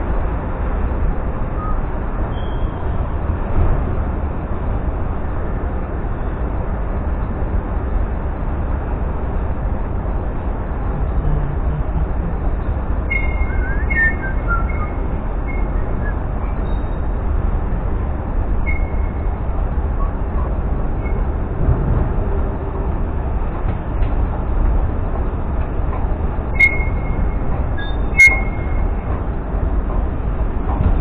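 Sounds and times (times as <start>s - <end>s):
bird chirps: 13.1s - 17.1s, 18.7s - 19.3s, 26.6s - 27.2s, 27.8s - 28.8s.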